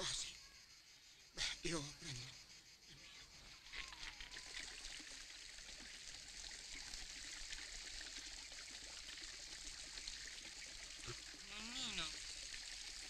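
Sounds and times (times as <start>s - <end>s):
fountain water trickling: 3.0s - 13.0s.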